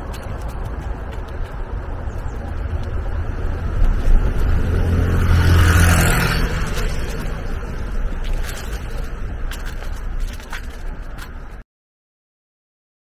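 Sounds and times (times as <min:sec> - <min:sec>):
car driving past: 0:02.9 - 0:08.7.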